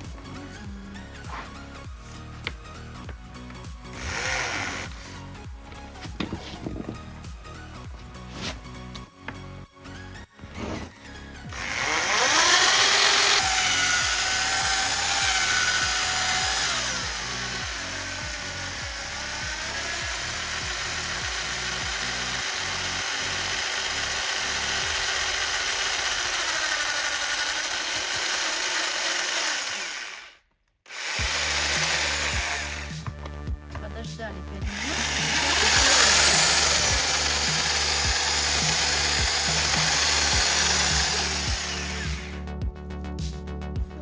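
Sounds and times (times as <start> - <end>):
drill-mixer stirring adhesive: 3.1 - 5.5, 11.1 - 33.2, 34.6 - 42.4.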